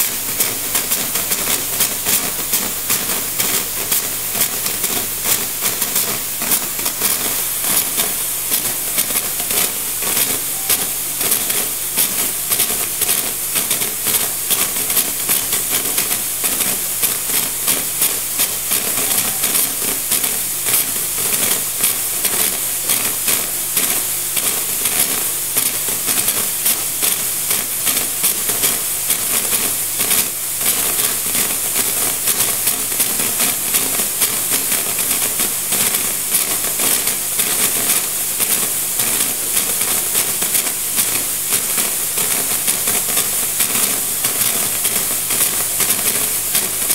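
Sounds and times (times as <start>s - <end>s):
espresso machine steam wand hissing: 0.1s - 25.1s.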